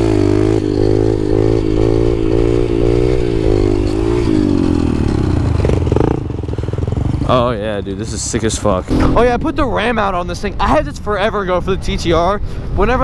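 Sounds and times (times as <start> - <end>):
dirt bike engine revving: 0.0 - 7.3.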